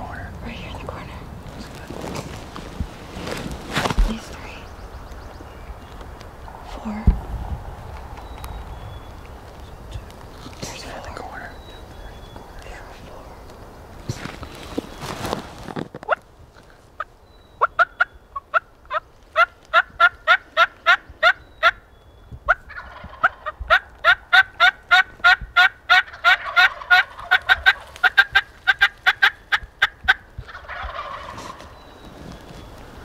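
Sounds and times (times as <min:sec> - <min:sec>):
turkey yelping: 0:17.6 - 0:21.8, 0:22.5 - 0:31.8.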